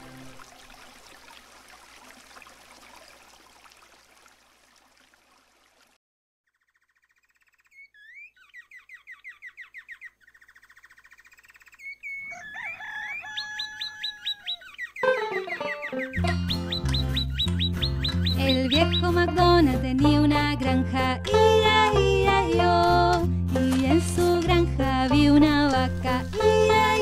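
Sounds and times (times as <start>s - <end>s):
birds chirping and trilling: 6.5s - 19.2s.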